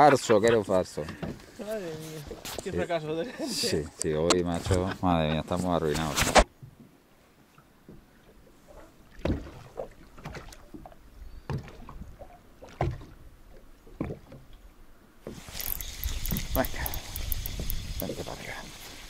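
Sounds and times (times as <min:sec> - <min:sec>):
water slapping against boat hull: 0:09.1 - 0:13.2.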